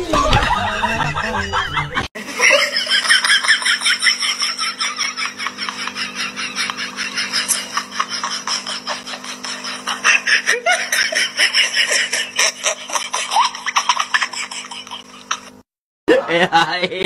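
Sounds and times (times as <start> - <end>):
people laughing: 0.0 - 17.0.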